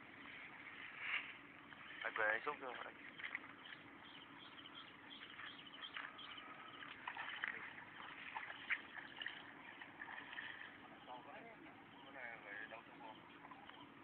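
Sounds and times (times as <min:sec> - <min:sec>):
bird chirps and calls: 0:02.8 - 0:14.0
fish splashing water: 0:02.9 - 0:10.9.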